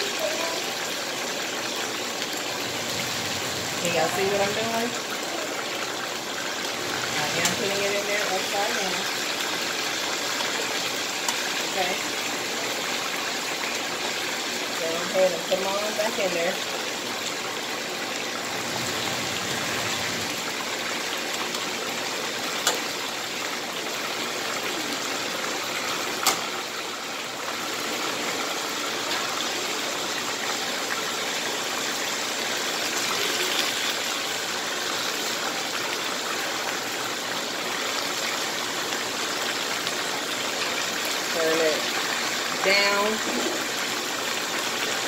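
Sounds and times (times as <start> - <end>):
chicken sizzling in hot oil: 0.0 - 45.0
metal tongs clicking on pan: 26.2 - 26.4.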